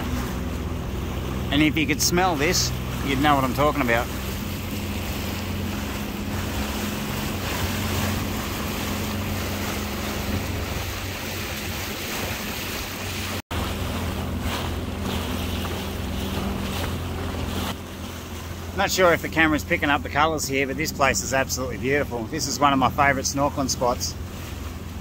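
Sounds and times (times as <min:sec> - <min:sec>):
water around hull: 0:00.0 - 0:25.0
watercraft engine idling: 0:00.0 - 0:25.0
wind rush on microphone: 0:04.1 - 0:17.8.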